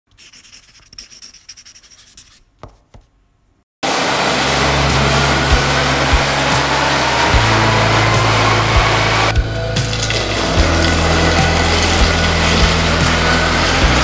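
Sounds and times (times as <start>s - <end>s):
pen scratching writing: 0.2s - 2.5s
mixer running with hum and hiss: 3.8s - 14.0s.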